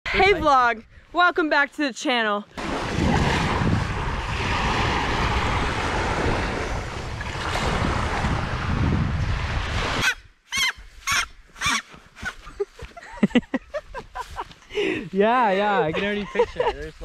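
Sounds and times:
small waves washing on shore: 0:02.6 - 0:10.1
wind on microphone: 0:02.6 - 0:11.2.

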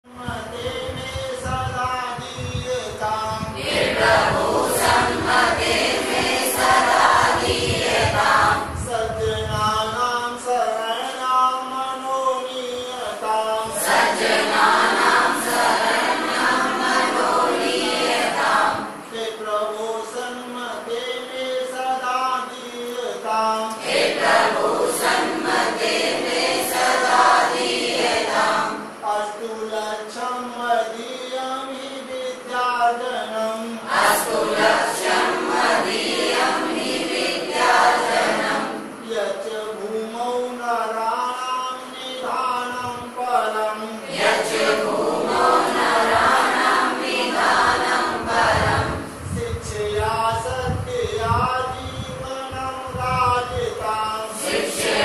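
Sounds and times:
students singing in unison: 0:03.3 - 0:09.6, 0:13.3 - 0:19.1, 0:23.5 - 0:29.1, 0:33.8 - 0:39.2, 0:43.4 - 0:50.5, 0:54.2 - 0:55.0.

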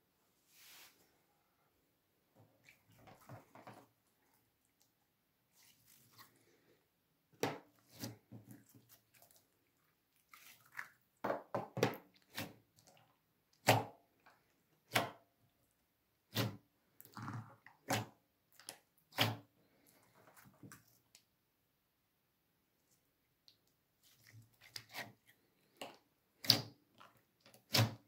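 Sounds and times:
slime squelching: 0:02.6 - 0:06.8, 0:07.6 - 0:11.2, 0:23.4 - 0:28.0.

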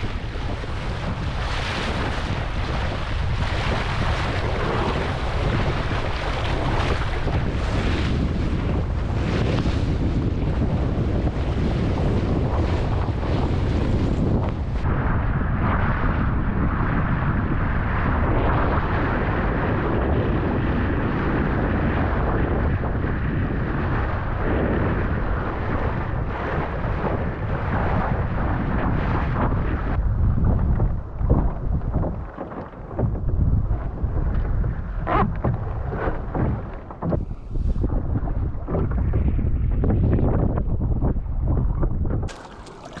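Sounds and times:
sail flapping and knocking: 0:00.0 - 0:14.8, 0:29.0 - 0:40.2, 0:42.0 - 0:43.0
water rushing along hull: 0:00.0 - 0:39.6, 0:42.3 - 0:43.0
wind buffeting microphone: 0:00.0 - 0:43.0.

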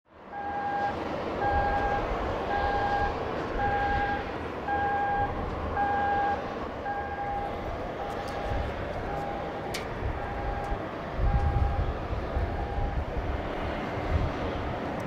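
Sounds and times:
electronic warning beeps: 0:00.4 - 0:11.8, 0:12.5 - 0:13.0
airport apron rumble and hiss: 0:00.8 - 0:15.0.

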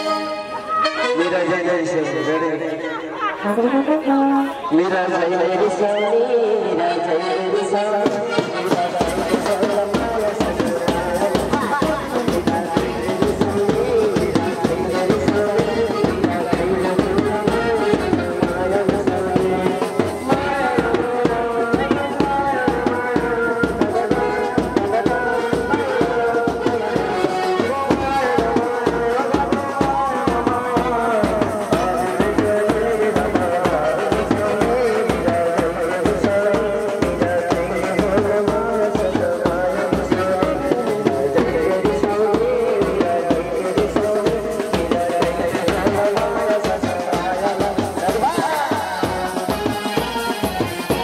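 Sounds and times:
steady drum beat: 0:07.9 - 0:51.0.

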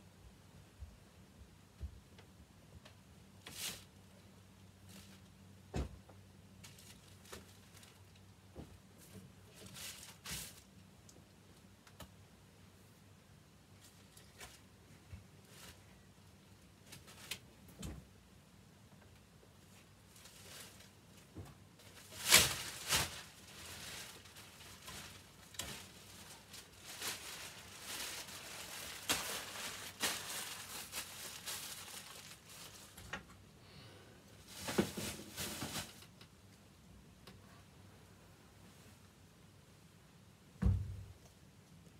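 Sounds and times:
plastic bag crinkling: 0:06.6 - 0:08.2, 0:21.8 - 0:33.2.

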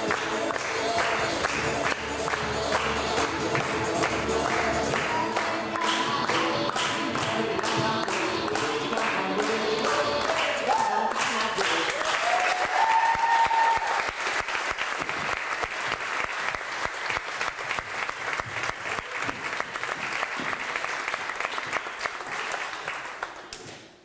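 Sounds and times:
audience applauding: 0:00.0 - 0:23.6.

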